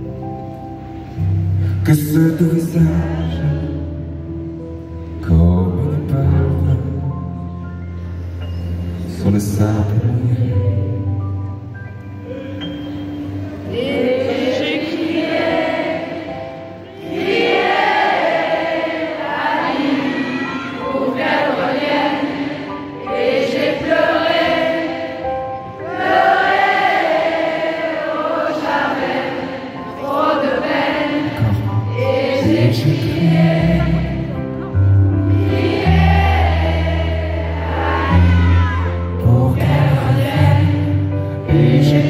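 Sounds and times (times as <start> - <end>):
piano accompaniment: 0.0 - 42.0
crowd singing in chorus: 13.6 - 42.0.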